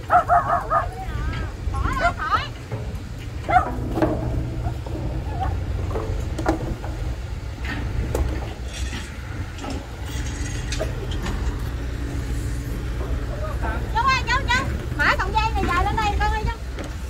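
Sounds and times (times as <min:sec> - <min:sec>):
knocks and clatter: 0:00.0 - 0:12.0
low engine drone: 0:00.0 - 0:17.0.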